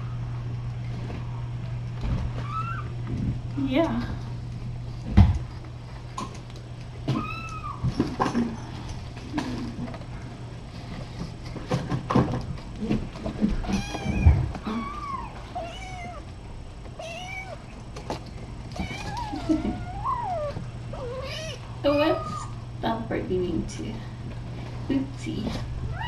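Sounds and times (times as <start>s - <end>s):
steady low hum: 0.0s - 26.0s
kittens meowing: 2.4s - 3.0s, 7.1s - 7.9s, 13.6s - 16.3s, 17.0s - 17.7s, 18.8s - 22.6s.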